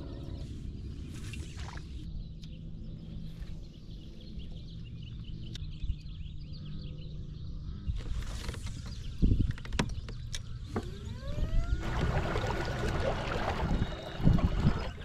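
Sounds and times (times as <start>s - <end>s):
small birds chirping: 0.0s - 15.0s
steady low rumble: 11.8s - 15.0s.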